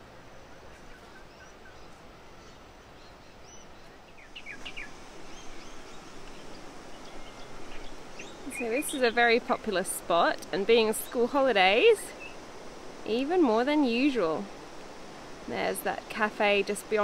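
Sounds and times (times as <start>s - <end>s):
steady background hiss: 0.0s - 17.0s
small birds chirping: 0.4s - 12.6s.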